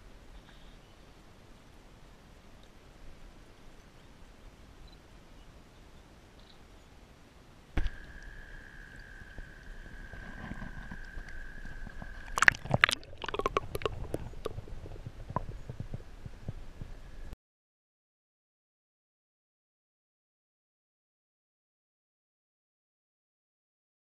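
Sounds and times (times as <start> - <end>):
steady high whine: 7.8 - 17.4
water sloshing and splashing: 9.4 - 16.0.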